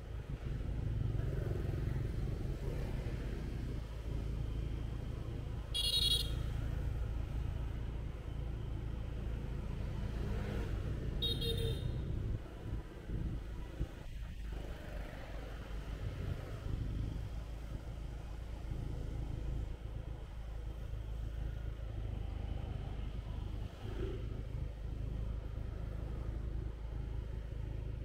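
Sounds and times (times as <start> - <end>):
motorbike engine and road rumble: 0.0 - 28.0.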